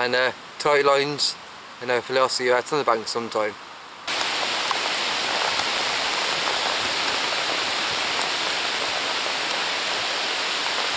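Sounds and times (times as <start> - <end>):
rain falling on lake: 0.0 - 10.9.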